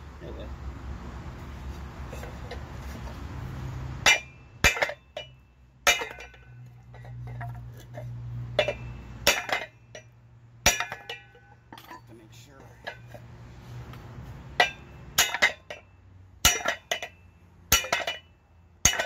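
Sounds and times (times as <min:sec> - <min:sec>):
hammer striking metal: 0:04.0 - 0:06.6, 0:08.5 - 0:12.0, 0:14.6 - 0:19.0.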